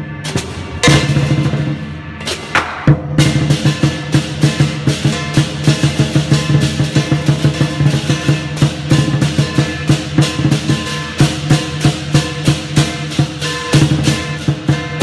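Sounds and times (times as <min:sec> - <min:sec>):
quick steady drum beat: 0:03.2 - 0:15.0.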